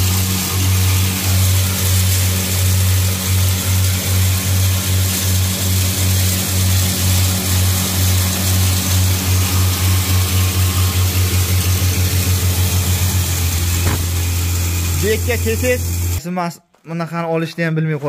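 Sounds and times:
grain hissing through mill: 0:00.0 - 0:16.2
hammer-mill motor hum: 0:00.0 - 0:16.2.

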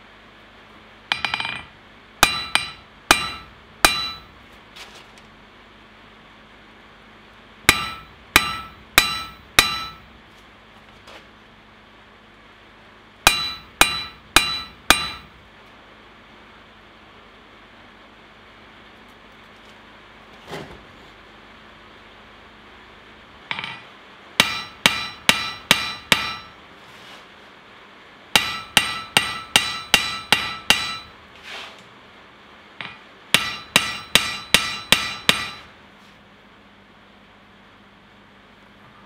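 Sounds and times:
hammer ringing on anvil: 0:01.1 - 0:04.3, 0:07.7 - 0:10.1, 0:13.3 - 0:15.3, 0:23.5 - 0:26.6, 0:28.4 - 0:31.2, 0:32.8 - 0:35.7.

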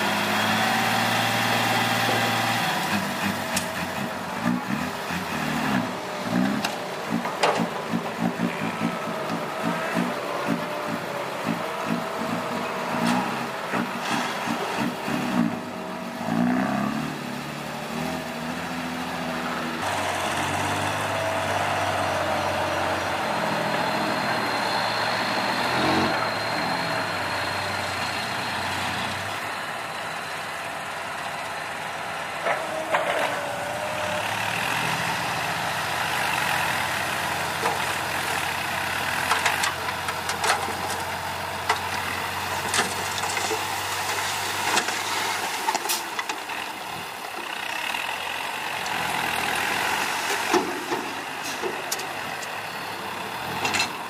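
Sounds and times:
diesel truck engine idling: 0:01.4 - 0:16.2, 0:18.6 - 0:44.0.

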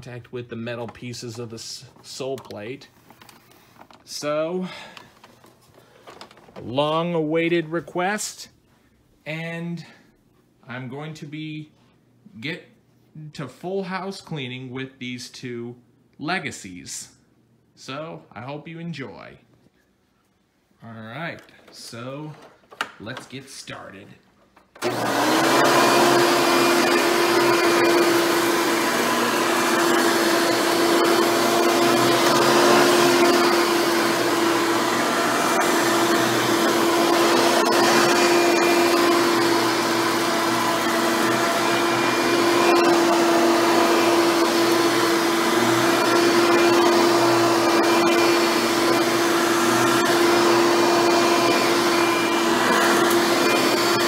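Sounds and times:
vacuum cleaner motor whine: 0:24.8 - 0:54.0.

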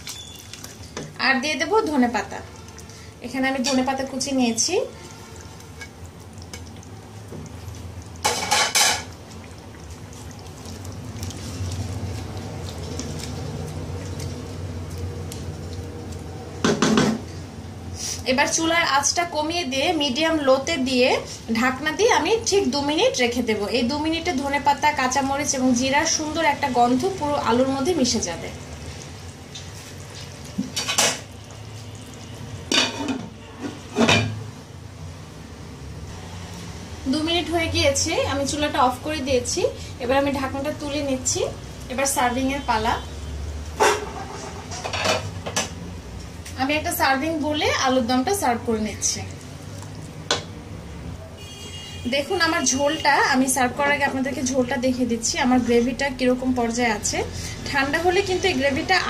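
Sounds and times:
spatula scraping steel pot: 0:43.8 - 0:45.2.

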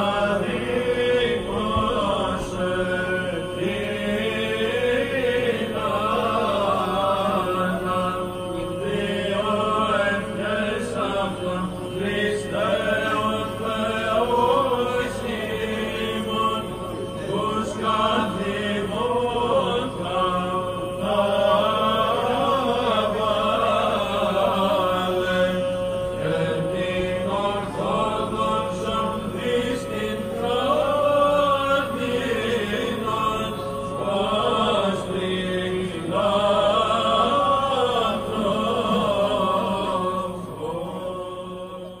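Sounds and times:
held drone note: 0:00.0 - 0:42.0
voices chanting a melody: 0:00.0 - 0:42.0.

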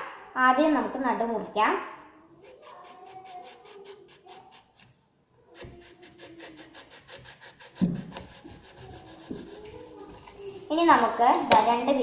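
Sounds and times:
knife sawing through fruit: 0:02.4 - 0:04.9, 0:05.5 - 0:09.6.

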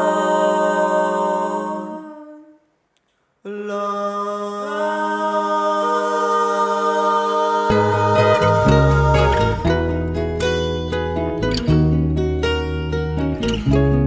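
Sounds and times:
vocal group singing in harmony: 0:00.0 - 0:02.7, 0:03.4 - 0:10.6
low plucked string instrument: 0:07.7 - 0:14.0.

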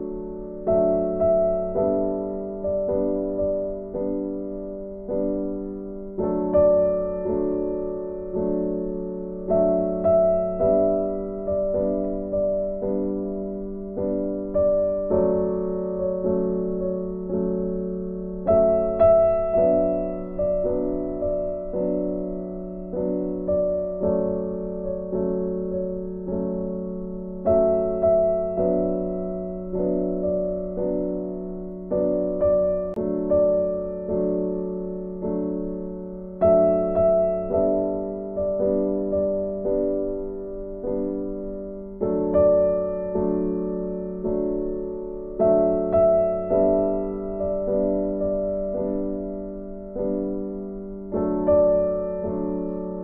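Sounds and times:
slow gentle piano chords: 0:00.0 - 0:53.0.

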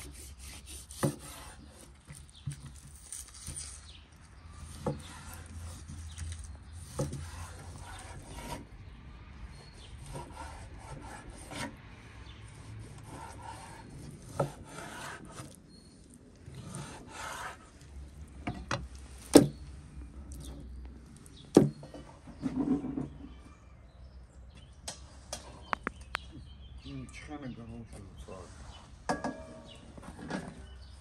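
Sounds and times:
knife slicing raw meat: 0:00.0 - 0:02.2, 0:12.6 - 0:15.6.

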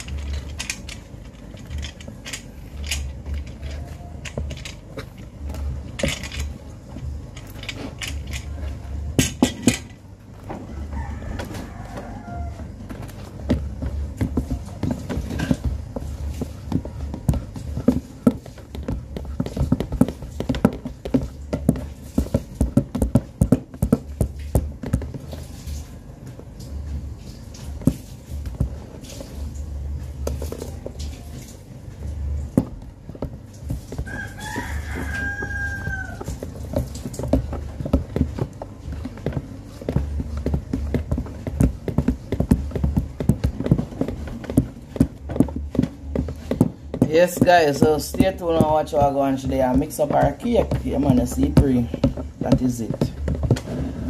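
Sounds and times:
knocking and clattering: 0:00.0 - 0:10.7
rooster crowing: 0:10.5 - 0:13.2, 0:34.0 - 0:37.0.

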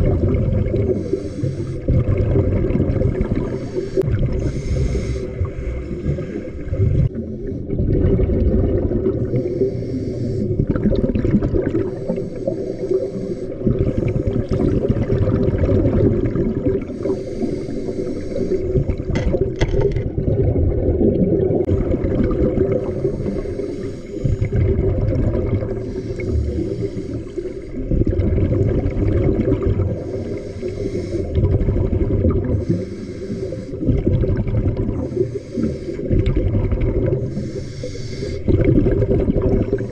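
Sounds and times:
gurgle of exhaled bubbles: 0:00.0 - 0:39.9
hissing inhale through regulator: 0:00.8 - 0:02.2, 0:03.2 - 0:07.8, 0:09.2 - 0:10.9, 0:11.6 - 0:15.1, 0:16.8 - 0:19.0, 0:22.6 - 0:28.0, 0:29.8 - 0:31.6, 0:32.4 - 0:34.2, 0:34.8 - 0:38.7, 0:39.6 - 0:39.9.

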